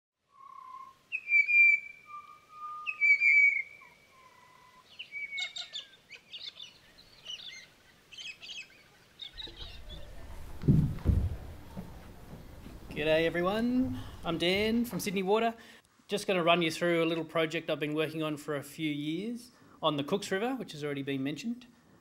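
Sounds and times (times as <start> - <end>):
bird whistling: 0.3 - 7.6
bird chirps: 0.3 - 10.6
room noise hum: 9.4 - 15.0
low thump: 9.4 - 15.1.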